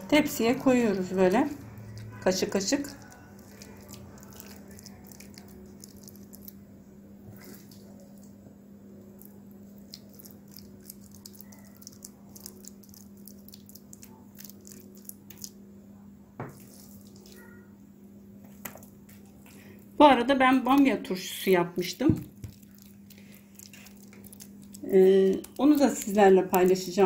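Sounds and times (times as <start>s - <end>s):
steady low hum: 0.0s - 27.0s
spoon squishing batter: 0.2s - 6.7s, 7.3s - 15.8s, 16.5s - 17.7s, 21.9s - 27.0s.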